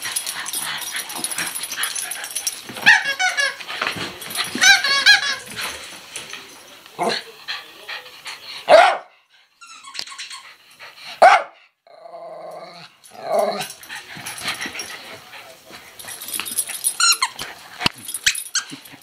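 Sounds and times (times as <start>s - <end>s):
dog barking: 8.7s - 9.1s, 11.2s - 11.6s
dog growling: 11.9s - 13.8s.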